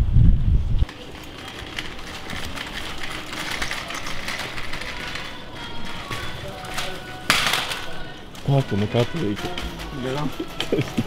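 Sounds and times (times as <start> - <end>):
shopping cart rattling on tiles: 0.8 - 11.0.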